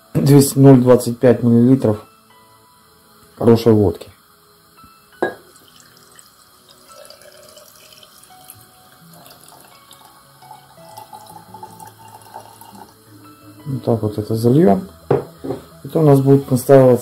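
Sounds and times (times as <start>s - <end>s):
liquid pouring into glass jar: 5.2s - 13.0s
short knock: 15.1s - 15.6s.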